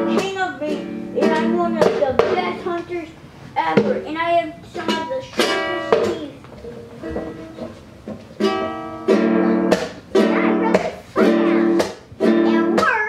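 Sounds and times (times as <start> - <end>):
ukulele chords strummed: 0.0 - 13.0.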